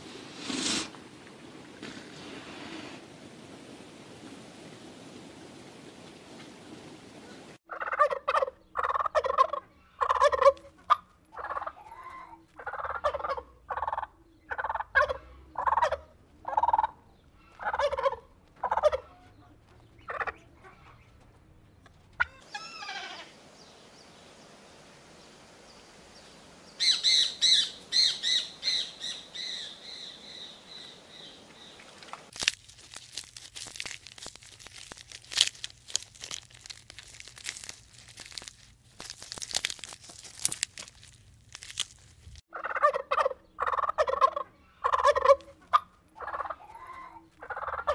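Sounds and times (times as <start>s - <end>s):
turkeys gobbling: 7.7s - 11.9s, 12.5s - 19.2s, 20.0s - 21.0s, 22.2s - 23.0s, 42.5s - 47.9s
hay crackling and rustling: 32.2s - 42.4s.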